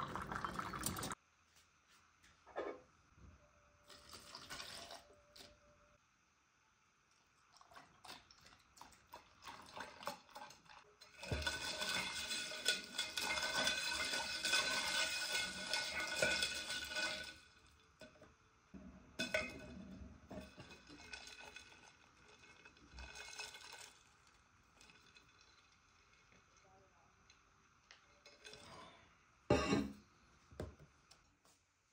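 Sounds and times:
spoon stirring in steel tumbler: 8.1 - 18.2, 19.2 - 24.1.

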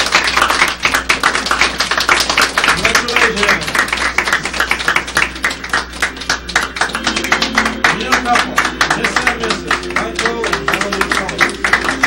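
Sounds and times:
crowd clapping: 0.0 - 12.0
music playing: 6.6 - 12.0.

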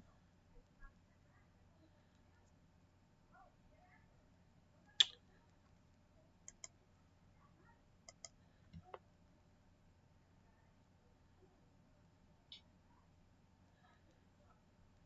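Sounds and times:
faint steady hum: 0.0 - 15.0
computer mouse clicking: 6.5 - 6.8, 8.1 - 9.0.

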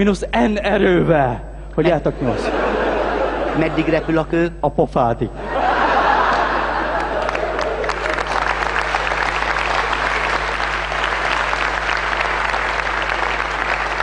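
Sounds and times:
faint low hum: 0.0 - 14.0
audience applauding: 6.1 - 14.0.

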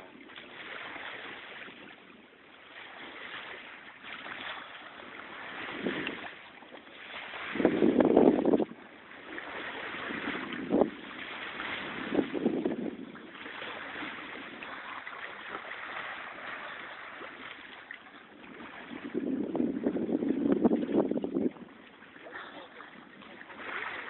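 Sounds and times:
sea water washing: 0.0 - 24.0
water splashes: 0.0 - 24.0
wind noise: 5.4 - 6.4, 7.2 - 17.5, 18.3 - 21.9.

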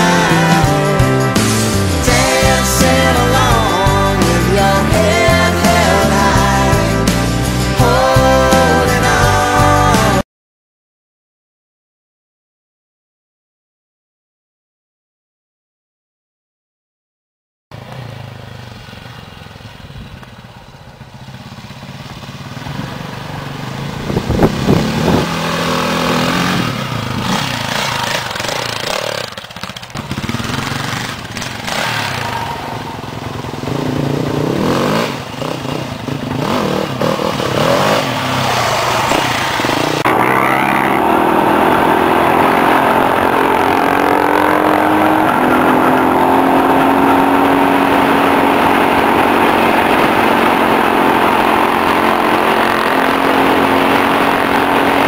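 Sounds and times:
dirt bike engine running steadily: 0.0 - 10.2, 17.8 - 38.4, 46.5 - 55.0
dirt bike engines revving: 0.0 - 10.2, 17.8 - 55.0.

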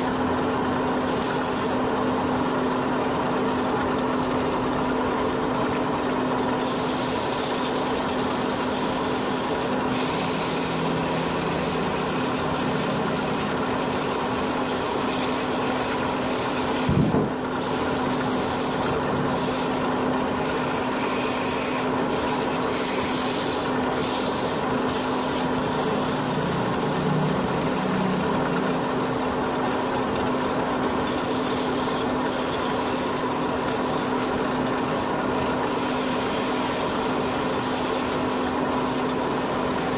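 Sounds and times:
lathe motor hum: 0.0 - 39.9
sandpaper rubbing on wood: 0.9 - 1.8, 6.7 - 12.4, 13.2 - 27.0, 30.4 - 39.9.

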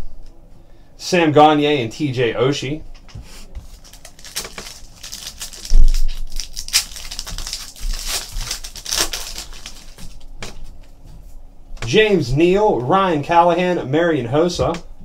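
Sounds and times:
foil wrappers crinkling and tearing: 3.6 - 10.7.

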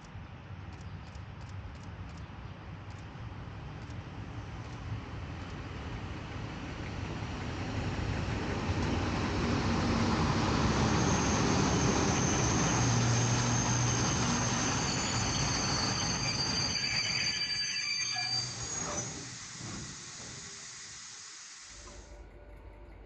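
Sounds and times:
train wheels rumbling on rail: 0.5 - 20.9
high wheel squeal: 10.1 - 20.6.

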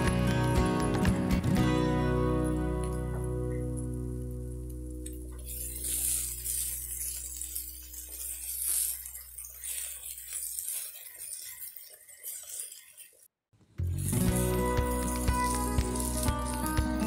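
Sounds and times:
food sizzling: 0.0 - 17.0
spatula scraping in a wok: 5.4 - 13.3.

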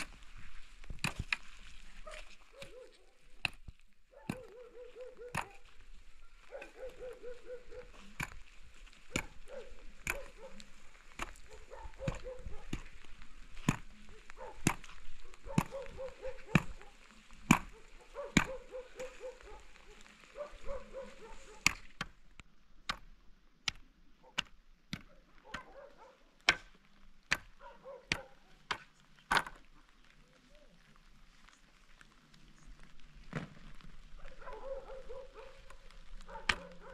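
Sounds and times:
spade striking straw and earth: 0.0 - 7.1, 7.8 - 25.8, 26.4 - 29.6.

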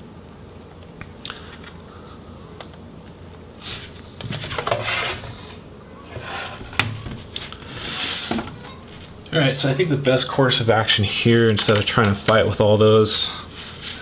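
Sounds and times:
plastic rubbing and scraping: 3.7 - 5.4, 6.1 - 9.1.

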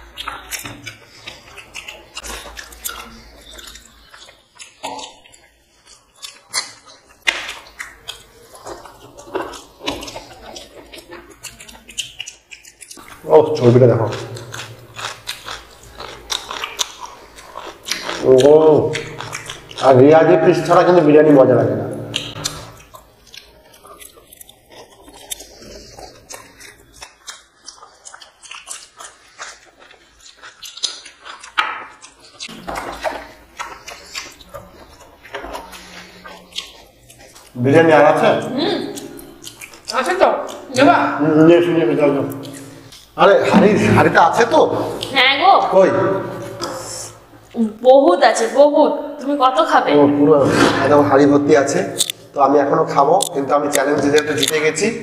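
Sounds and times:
people chewing food: 0.0 - 55.0
small mouth clicks: 0.1 - 13.2, 14.1 - 19.8, 22.0 - 37.6, 38.8 - 40.8, 42.3 - 43.2.

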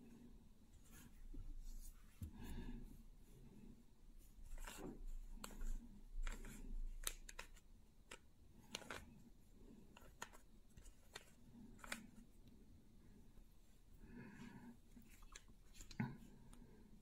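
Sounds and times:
puzzle cube clicking: 6.2 - 9.1.

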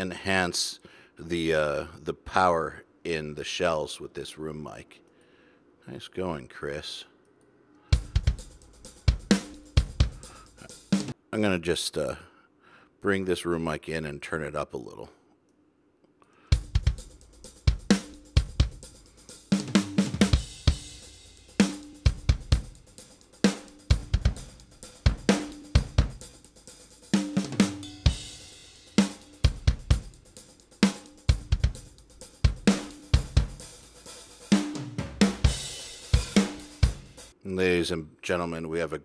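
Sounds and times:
rock drum kit groove: 8.0 - 11.2, 16.5 - 37.4.

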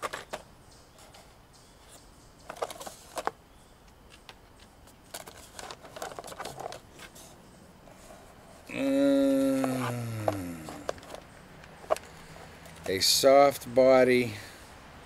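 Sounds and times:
plastic packaging crinkling: 5.1 - 6.8.

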